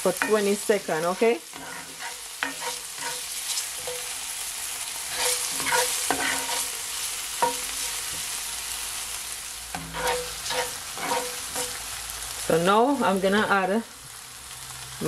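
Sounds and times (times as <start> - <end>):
spatula knocking and scraping pan: 0.0 - 4.2, 5.1 - 8.4, 9.7 - 11.8
vegetables sizzling in oil: 0.0 - 15.0.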